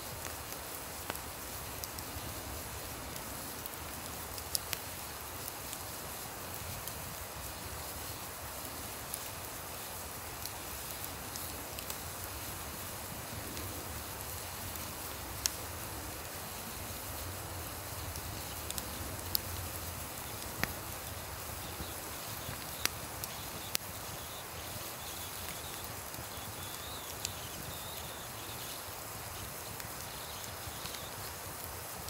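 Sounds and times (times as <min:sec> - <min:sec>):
campfire crackling and popping: 0:00.0 - 0:32.0.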